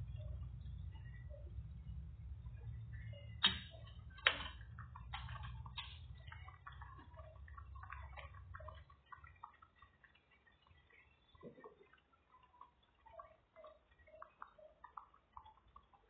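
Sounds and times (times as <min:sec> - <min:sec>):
broth bubbling in a pot: 0:00.0 - 0:16.0
low hum: 0:00.0 - 0:16.0.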